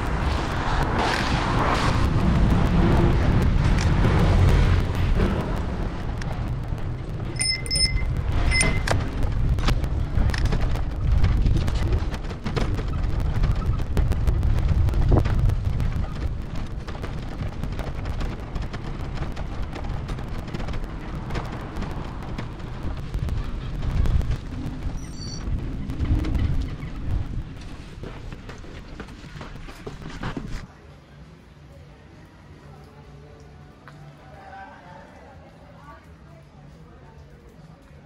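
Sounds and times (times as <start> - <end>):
wind buffeting: 0.0 - 30.6
bicycle road rumble: 0.0 - 38.0
high chirp: 7.4 - 8.8
short high beeps: 7.4 - 8.9, 25.0 - 25.4.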